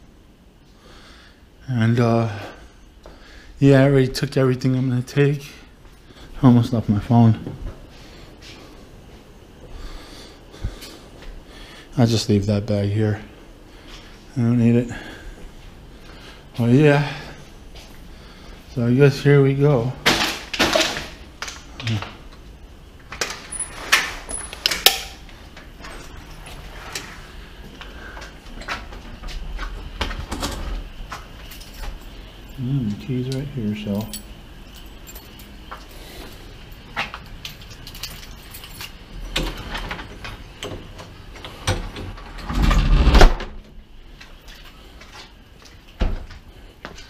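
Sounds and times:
keys jangling against lock: 0:31.4 - 0:32.2, 0:33.3 - 0:39.6.

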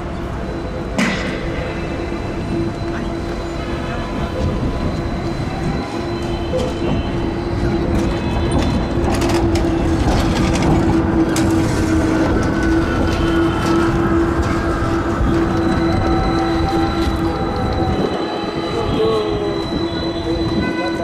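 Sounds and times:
tram motor hum: 0:00.0 - 0:20.8
wheels rumbling on rails: 0:00.0 - 0:21.0
wheels clicking on track: 0:04.3 - 0:20.8.

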